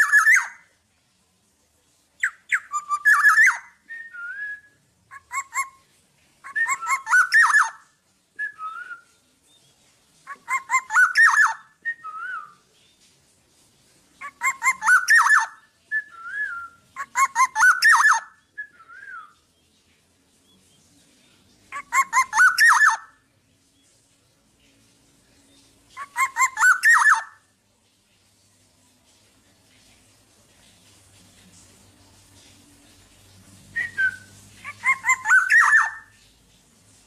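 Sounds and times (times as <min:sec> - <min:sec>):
bird singing: 0:00.0 - 0:00.7, 0:02.2 - 0:05.8, 0:06.4 - 0:13.1, 0:14.2 - 0:24.0, 0:25.4 - 0:27.4, 0:33.8 - 0:36.2.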